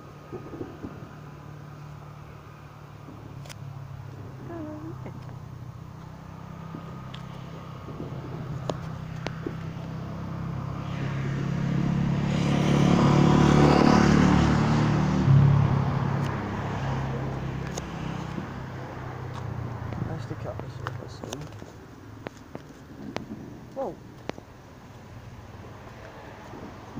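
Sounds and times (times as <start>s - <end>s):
car driving past: 0.0s - 21.2s.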